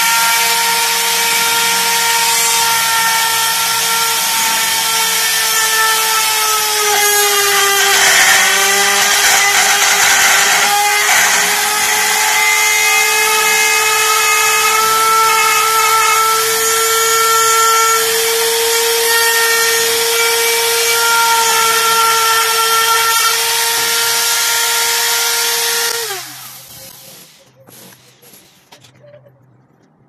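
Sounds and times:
router cutting wood: 0.0s - 28.0s.

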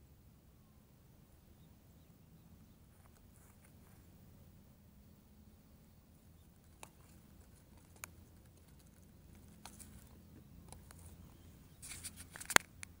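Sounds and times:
scuffling rustle: 11.8s - 12.6s.

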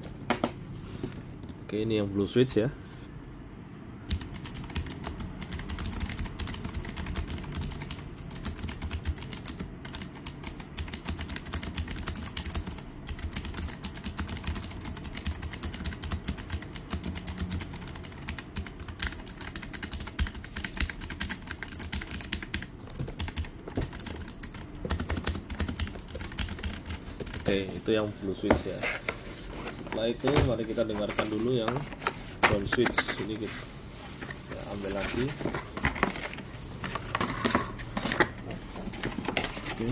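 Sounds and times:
clicky mechanical keyboard typing: 4.1s - 27.6s.

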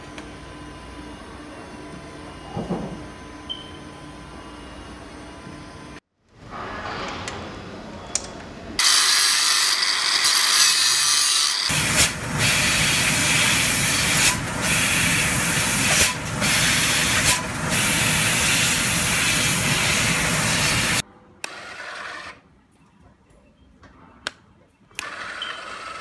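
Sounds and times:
angle grinder grinding steel: 8.8s - 21.0s.

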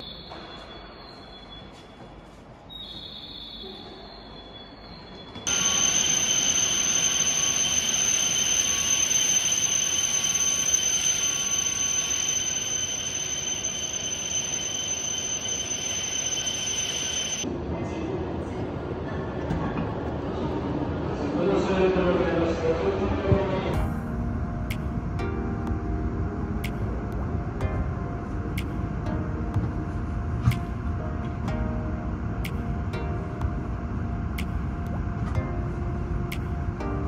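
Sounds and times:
high-pitched train whine: 0.0s - 17.6s
train pulling into platform: 0.0s - 37.0s.

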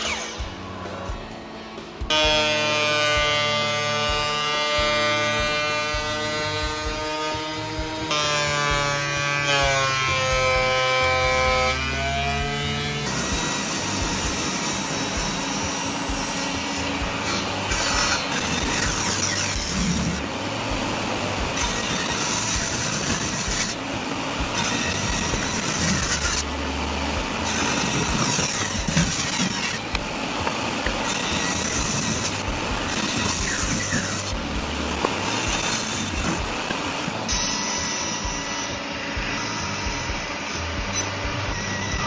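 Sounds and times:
table saw ripping hardwood: 0.0s - 42.0s.

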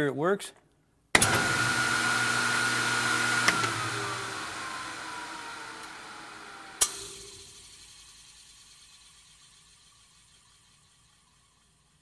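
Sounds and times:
table saw motor whining: 1.2s - 7.6s.

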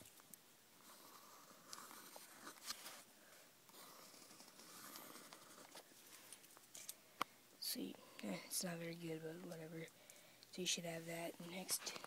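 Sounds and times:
pencil scratching on paper: 0.9s - 2.6s, 3.7s - 5.8s.

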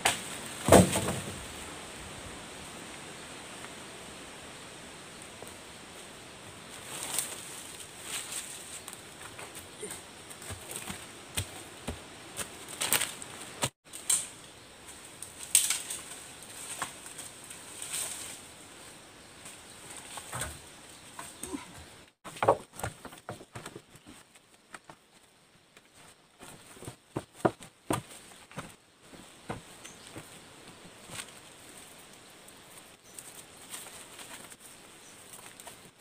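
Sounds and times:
rustling leaves and brush: 0.0s - 36.0s
wooden pole knocking and scraping: 20.0s - 25.0s, 26.4s - 30.3s.

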